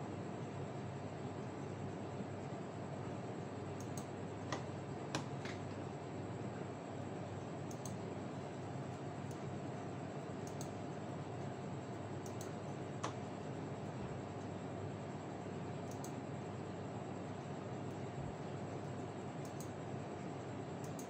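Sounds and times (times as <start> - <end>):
background hum and hiss: 0.0 - 21.0
light clicks: 3.8 - 4.6, 7.7 - 8.0, 10.4 - 10.8, 12.2 - 13.2, 15.9 - 16.2, 19.4 - 19.8, 20.8 - 21.0.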